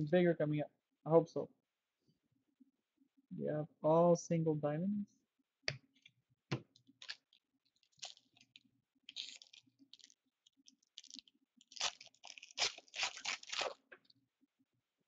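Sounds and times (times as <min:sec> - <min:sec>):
foil wrapper crinkling and tearing: 0:06.8 - 0:14.0.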